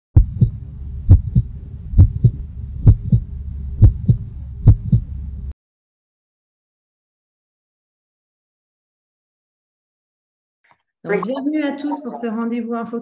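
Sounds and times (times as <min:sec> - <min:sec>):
heartbeat thumps: 0:00.2 - 0:05.2
low hum: 0:00.2 - 0:05.6.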